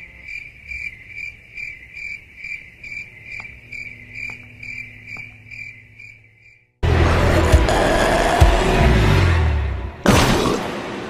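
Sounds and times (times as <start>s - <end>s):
cricket chirping: 0.0s - 6.8s.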